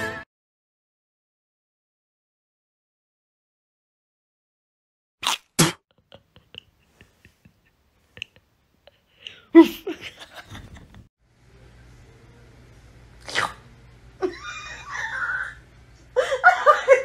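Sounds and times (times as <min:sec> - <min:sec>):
person sneezing: 0:05.2 - 0:05.8.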